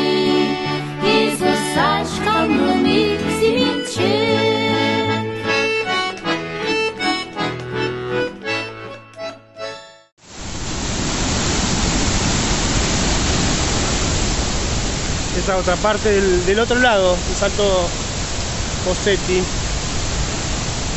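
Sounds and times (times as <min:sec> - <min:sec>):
instrumental music with chords: 0:00.0 - 0:10.1
waterfall: 0:10.2 - 0:20.9.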